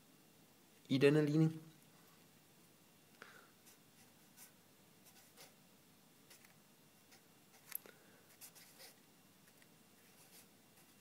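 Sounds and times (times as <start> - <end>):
marker pen scratching on paper: 3.6 - 5.6, 6.3 - 11.0.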